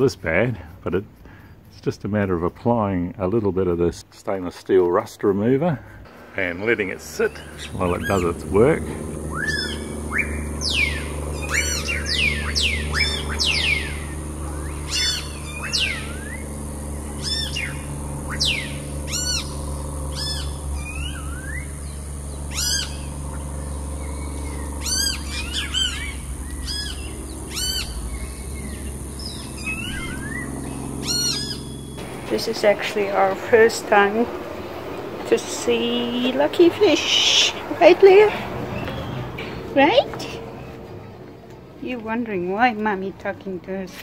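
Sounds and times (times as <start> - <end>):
steady low hum: 0.0 - 44.0
birds whistling and chirping: 6.1 - 41.2.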